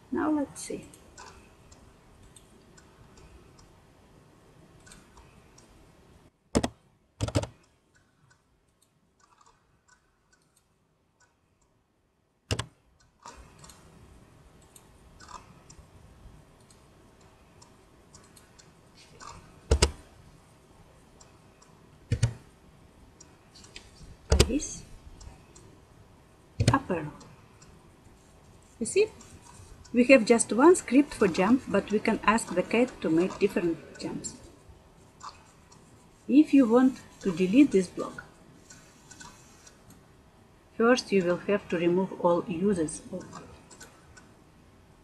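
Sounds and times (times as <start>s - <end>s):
faint steady hiss: 0.0s - 45.0s
mouse and keyboard clicks: 6.6s - 10.6s, 12.5s - 13.9s, 17.6s - 20.0s, 22.1s - 22.4s, 23.6s - 24.6s, 38.7s - 40.0s
faint ticks: 7.6s - 11.8s, 38.6s - 40.0s.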